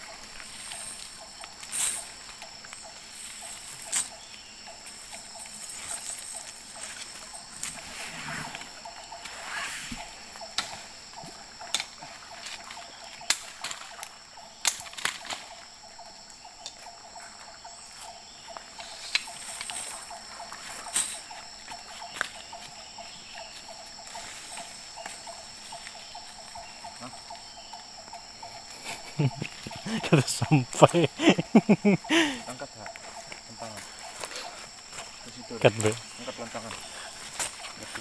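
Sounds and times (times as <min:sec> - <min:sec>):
forest insects droning: 0:00.0 - 0:38.0.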